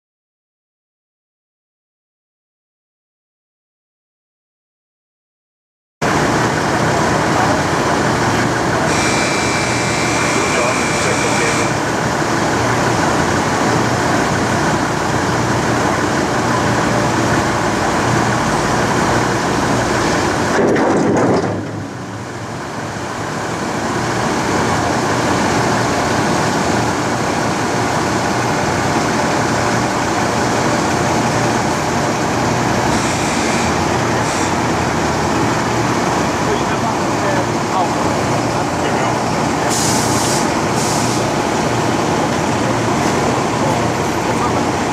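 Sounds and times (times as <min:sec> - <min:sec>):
crane machinery drone: 0:06.0 - 0:20.6, 0:21.5 - 0:44.9.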